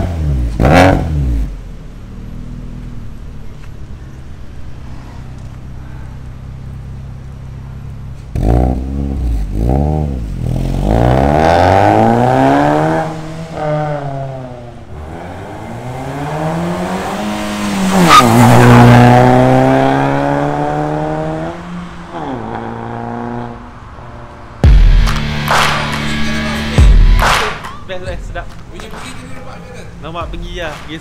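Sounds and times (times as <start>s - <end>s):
car engine revving: 0.0s - 31.0s.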